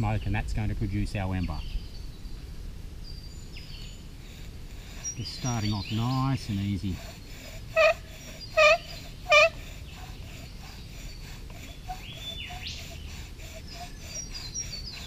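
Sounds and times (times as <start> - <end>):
steady hiss: 2.3 - 15.0
bow drill squeaking: 4.8 - 15.0.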